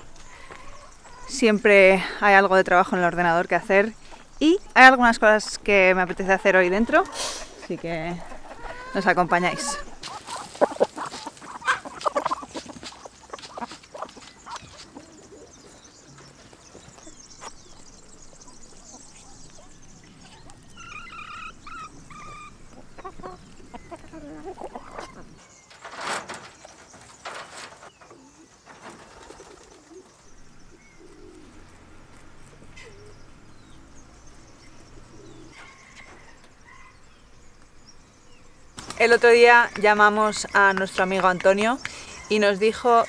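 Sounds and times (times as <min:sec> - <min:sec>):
chickens clucking: 0:00.0 - 0:43.0
ducks calling softly: 0:03.5 - 0:25.5.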